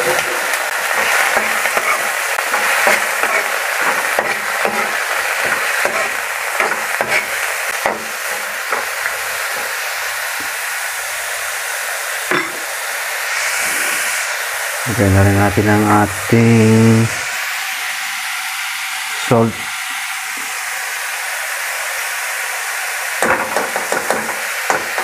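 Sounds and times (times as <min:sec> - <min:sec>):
vegetables sizzling in a pan: 0:00.0 - 0:25.0
spatula scraping a pan: 0:00.9 - 0:08.9.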